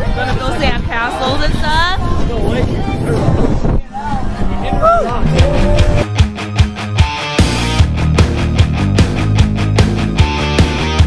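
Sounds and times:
music with steady drum beat: 0:05.3 - 0:11.0.

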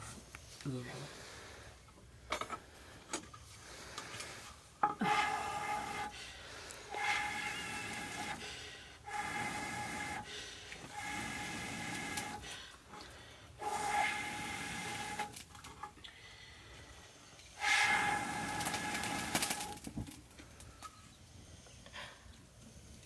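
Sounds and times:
hissing blows through a blowpipe: 0:05.0 - 0:06.2, 0:06.9 - 0:12.5, 0:13.6 - 0:15.2, 0:17.5 - 0:19.3.

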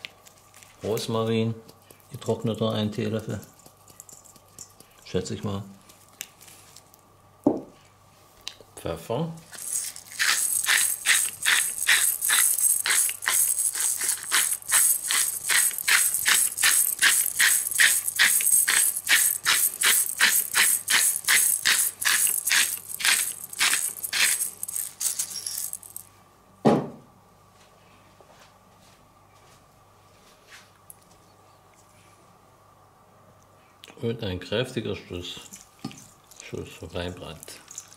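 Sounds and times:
pepper mill grinding: 0:01.0 - 0:06.3, 0:09.5 - 0:26.1, 0:35.4 - 0:37.9
thump: 0:26.6 - 0:27.0.

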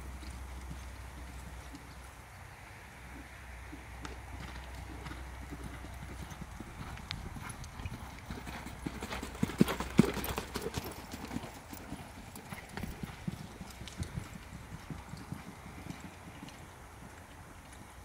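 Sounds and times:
hoofbeats on sand: 0:04.0 - 0:17.2.

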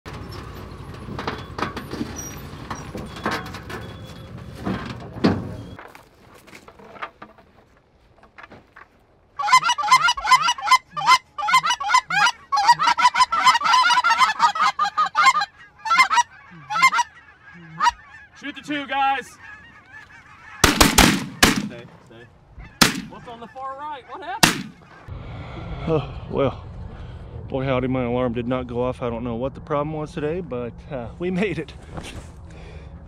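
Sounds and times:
vehicle engine rumbling: 0:00.0 - 0:09.3, 0:24.4 - 0:33.0
geese honking: 0:09.4 - 0:25.1.

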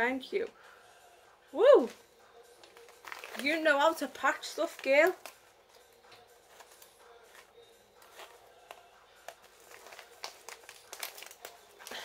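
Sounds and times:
packaging crinkling and rustling: 0:02.6 - 0:05.4, 0:06.5 - 0:12.0.

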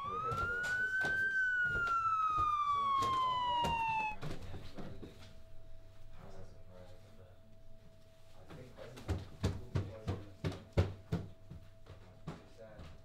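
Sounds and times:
police siren wailing: 0:00.0 - 0:05.0.

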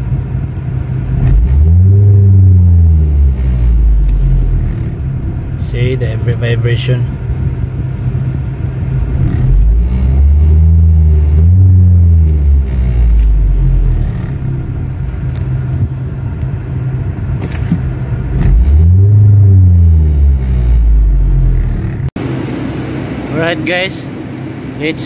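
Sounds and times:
car engine revving: 0:00.9 - 0:25.0.

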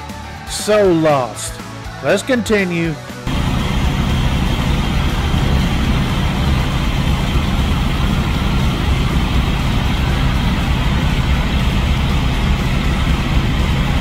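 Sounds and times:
diesel truck engine idling: 0:03.0 - 0:14.0.

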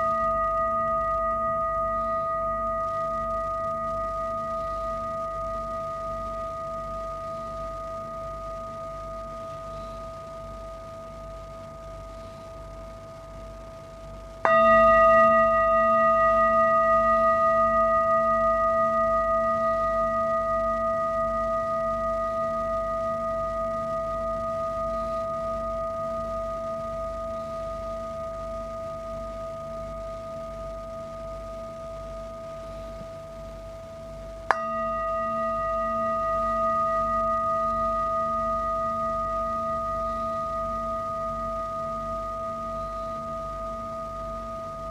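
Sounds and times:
mallet striking singing bowl: 0:14.4 - 0:18.4, 0:34.5 - 0:40.9
singing bowl struck with mallet: 0:14.4 - 0:44.9.

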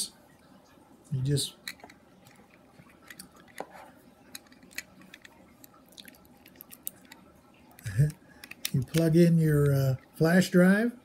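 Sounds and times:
plastic clicks and taps: 0:08.1 - 0:09.8.

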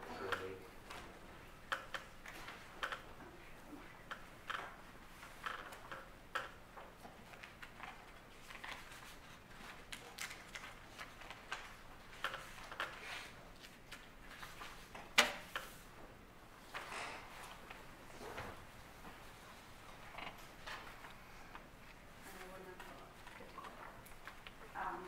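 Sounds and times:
papers rustling: 0:07.0 - 0:15.0.

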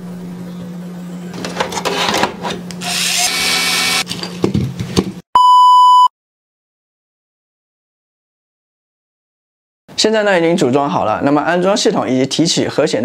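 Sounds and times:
loud steady beep: 0:05.4 - 0:06.1.

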